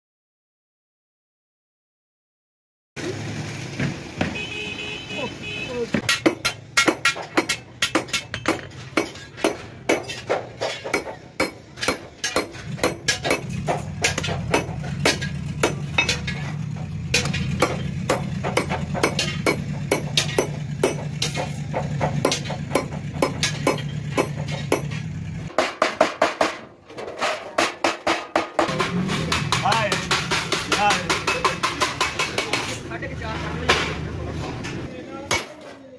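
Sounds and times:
hammer striking metal punch: 6.0 - 32.8.

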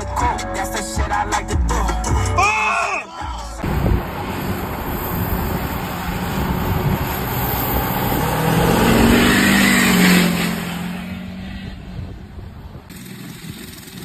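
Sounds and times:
engine hum: 3.4 - 14.0.

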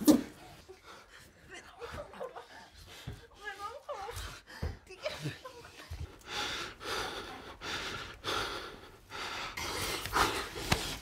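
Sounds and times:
person breathing heavily: 5.9 - 11.0.

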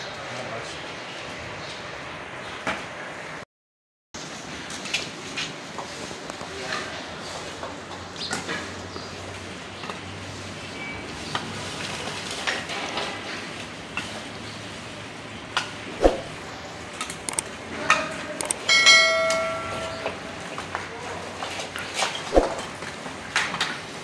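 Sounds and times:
ringing metallic tone: 18.6 - 20.6.

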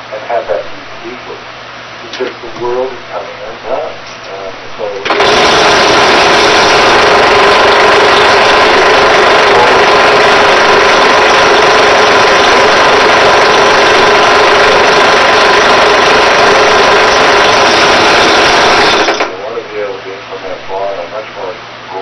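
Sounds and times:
drill press motor hum: 5.0 - 19.4.

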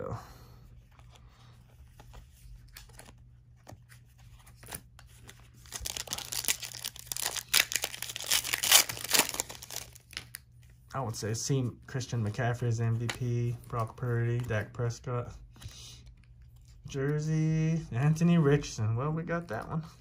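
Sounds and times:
plastic wrapper tearing and crinkling: 4.5 - 10.4.

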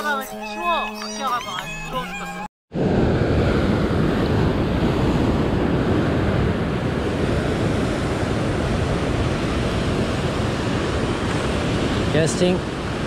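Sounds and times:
ocean surf breaking over rocks: 2.8 - 13.0.

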